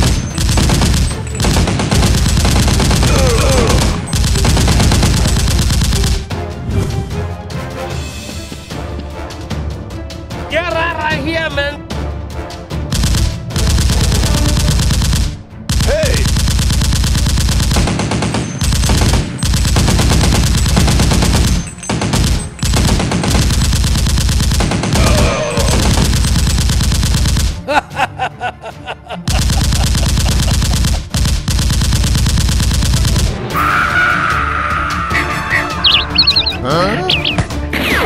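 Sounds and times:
automatic gunfire: 0.0 - 6.3, 12.9 - 27.6, 29.3 - 33.4.

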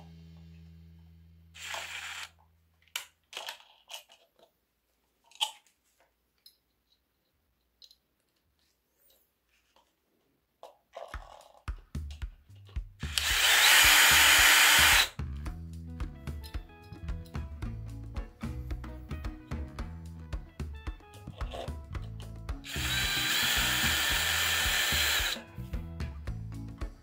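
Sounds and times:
cordless drill driving screw: 1.6 - 2.3, 13.0 - 15.1, 22.7 - 25.4
background music: 11.3 - 27.0.

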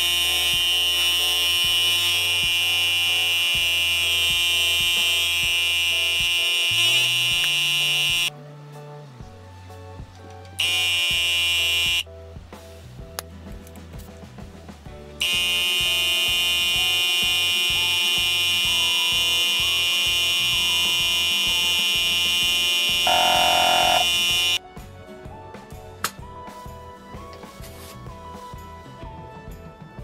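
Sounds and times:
tyre compressor buzzing: 0.0 - 8.3, 10.6 - 12.0, 15.2 - 24.6
background music with beat: 0.0 - 30.0.

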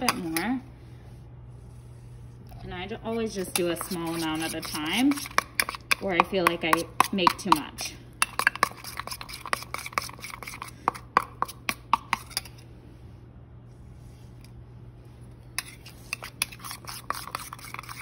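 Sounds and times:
metal spoon scraping steel bowl: 0.0 - 0.6, 2.5 - 12.6, 15.5 - 18.0.

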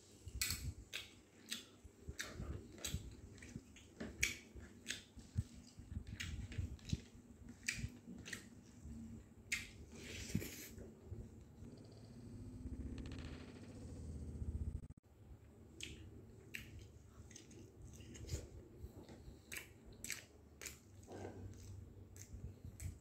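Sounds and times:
person chewing food: 0.2 - 10.8, 15.8 - 23.0.

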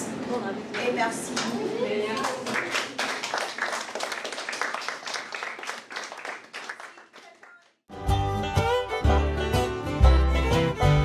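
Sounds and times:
audience applauding: 2.2 - 7.8
plucked string music: 7.9 - 11.0.

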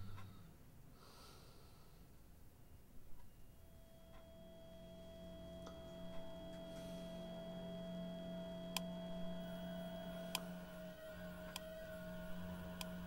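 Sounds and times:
low electronic hum: 0.0 - 0.9, 2.3 - 13.0
steady electronic whine: 3.4 - 13.0
thin high tone: 3.6 - 12.6.

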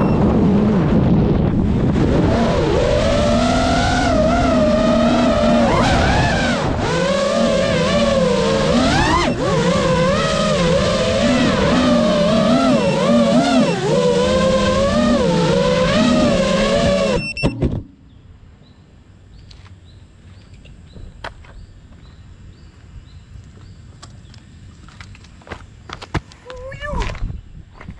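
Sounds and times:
drone motors whining: 0.0 - 17.8
faint chirps and clicks: 19.4 - 22.2, 23.4 - 24.5.

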